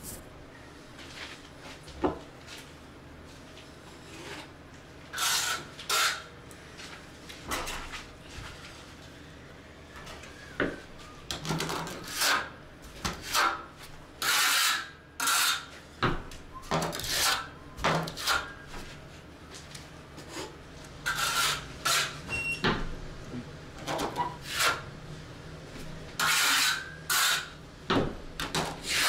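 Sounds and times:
trowel scraping mortar: 5.1s - 6.3s, 11.8s - 12.5s, 14.2s - 15.7s, 16.9s - 18.6s, 20.2s - 22.2s, 24.4s - 24.8s, 26.2s - 27.6s, 28.7s - 29.0s.

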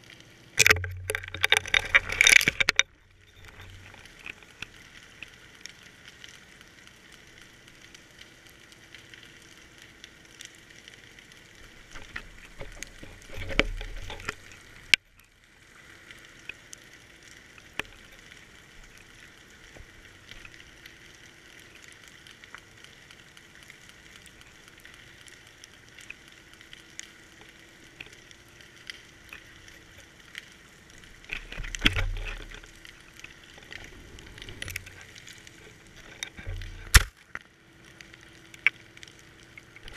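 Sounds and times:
faint clicks and crackle: 0.0s - 39.9s
muffled underwater hiss: 0.0s - 39.9s
sharp click: 36.9s - 37.1s.

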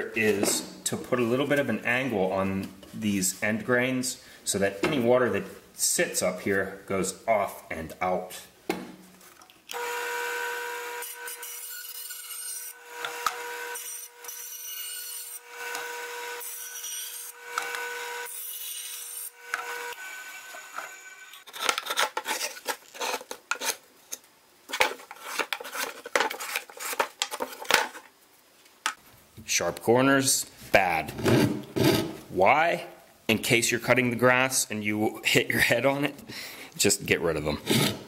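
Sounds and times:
bandsaw humming and cutting wood: 9.7s - 21.3s
hand rasp scraping wood: 25.0s - 27.4s, 37.6s - 38.0s.

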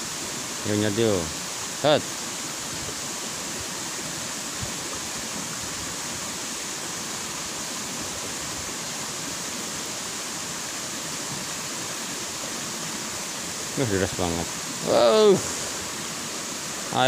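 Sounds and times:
river water rushing over rocks: 0.0s - 17.0s.

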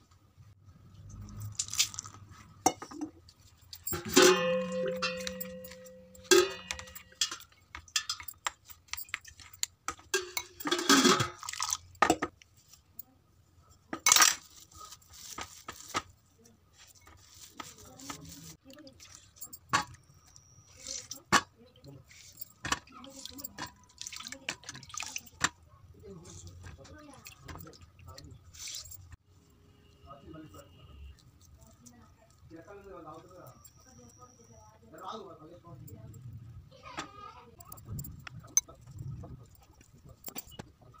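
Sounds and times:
spoon scraping glass bowl: 3.6s - 11.6s, 28.5s - 29.2s
ringing metal strike: 3.9s - 7.2s.

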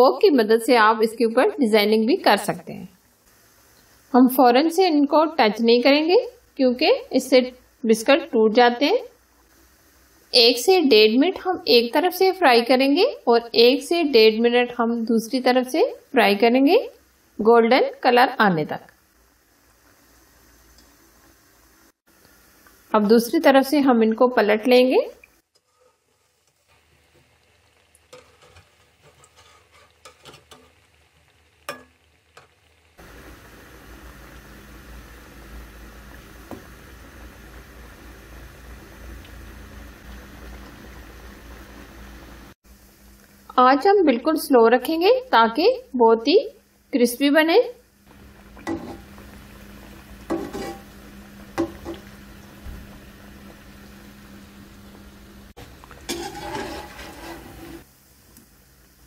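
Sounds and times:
oil sizzling in a wok: 0.0s - 59.0s
metal spoon clinking on pan: 31.7s - 32.5s.

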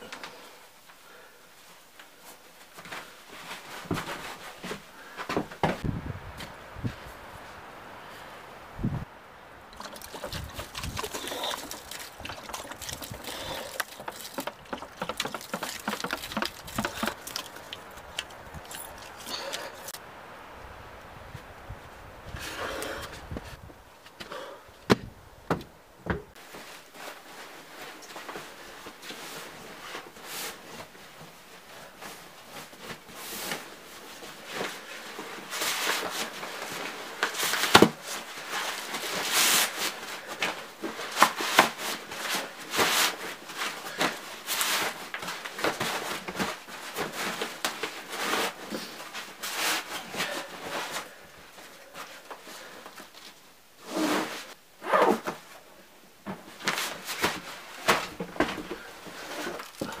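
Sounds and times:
objects being handled: 9.7s - 20.0s, 56.2s - 60.0s.

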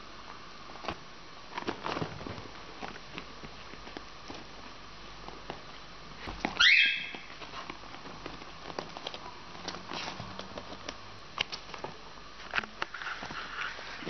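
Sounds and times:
young animal squeaking: 6.6s - 7.3s.

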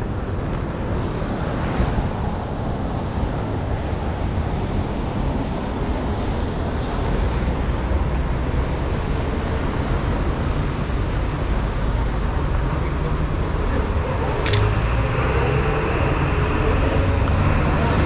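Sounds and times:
street traffic rumble: 0.0s - 18.0s
camera shutter click: 14.5s - 14.7s.

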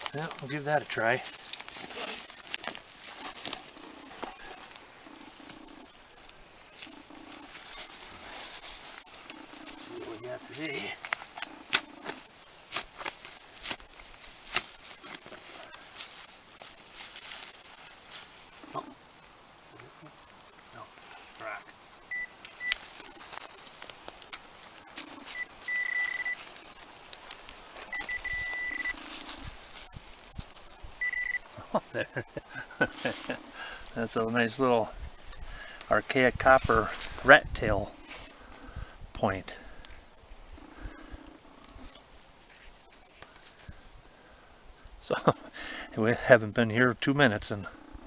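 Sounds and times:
digging in leaves and soil: 0.0s - 19.0s, 19.7s - 38.6s
metal detector beeps: 22.1s - 22.8s, 25.3s - 26.4s, 27.9s - 29.0s, 31.0s - 31.5s.

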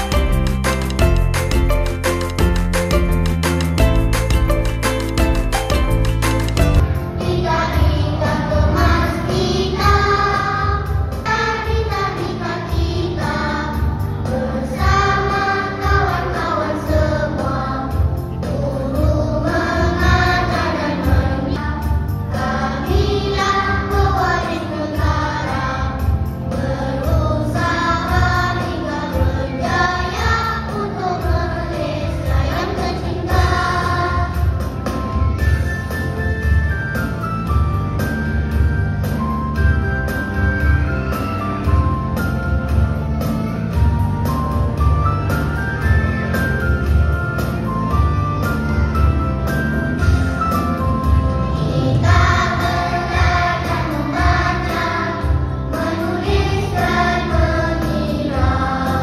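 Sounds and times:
group singing song with beat: 7.3s - 17.9s, 26.6s - 34.4s, 51.8s - 59.0s.

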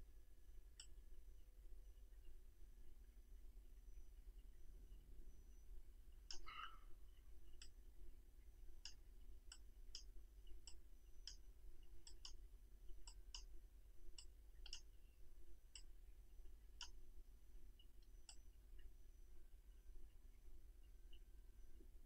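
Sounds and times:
low steady hum: 0.0s - 22.0s
computer mouse clicks: 6.3s - 6.6s, 8.8s - 13.5s, 14.2s - 14.9s, 18.0s - 18.9s.

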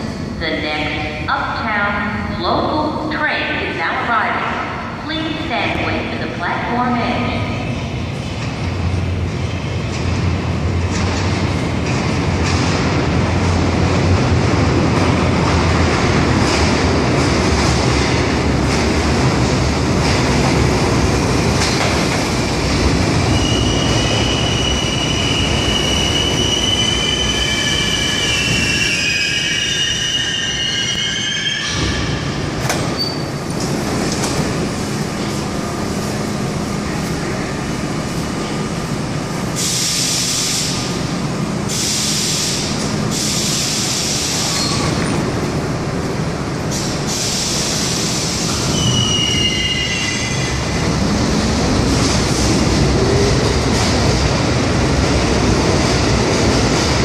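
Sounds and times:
low train hum: 0.0s - 57.0s
train wheels and brakes squealing: 23.2s - 33.4s, 41.7s - 45.2s, 46.7s - 50.8s.

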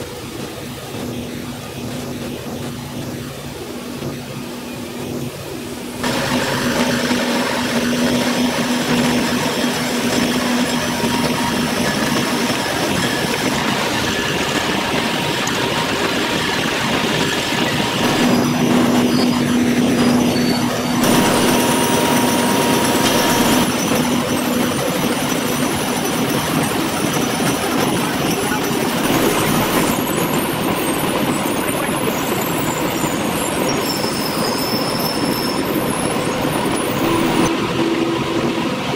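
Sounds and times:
low machinery hum: 0.0s - 30.8s
industrial machinery din: 0.7s - 38.9s.

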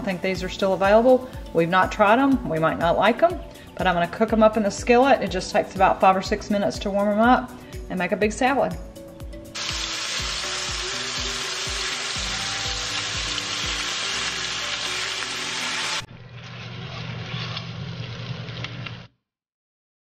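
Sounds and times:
background music with a beat: 8.8s - 15.8s
meat sizzling in a frying pan: 9.6s - 16.1s.

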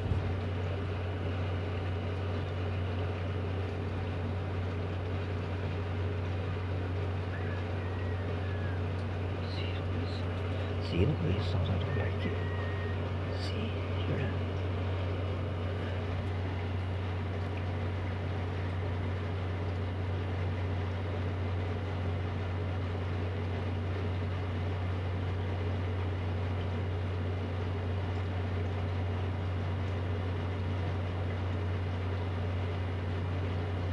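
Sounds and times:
steady low hum: 0.0s - 33.9s.

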